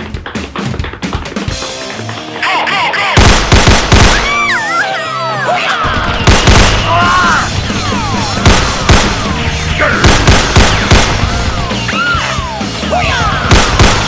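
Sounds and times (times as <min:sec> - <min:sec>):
background music: 0:00.0 - 0:14.0
rapid loud gunshots: 0:03.2 - 0:04.5, 0:05.8 - 0:11.8, 0:13.3 - 0:14.0.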